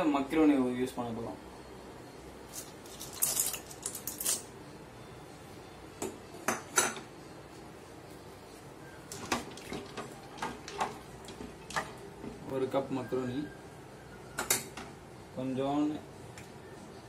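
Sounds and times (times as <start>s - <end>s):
dry pasta rattling into pan: 2.6s - 4.4s.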